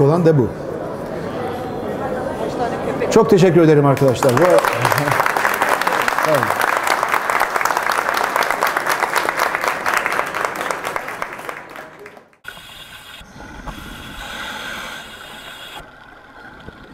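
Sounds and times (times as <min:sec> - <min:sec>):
audience applauding: 0:03.9 - 0:12.4.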